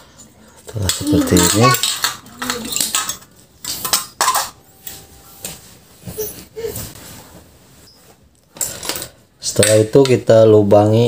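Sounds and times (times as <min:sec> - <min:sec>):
aluminium cans clinking on tile floor: 0:00.0 - 0:05.2.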